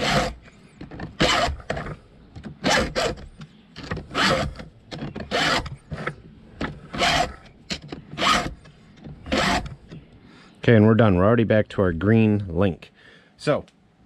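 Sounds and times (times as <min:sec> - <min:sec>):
file rasping on chainsaw chain: 0:00.0 - 0:00.4, 0:06.8 - 0:07.5, 0:09.2 - 0:09.7.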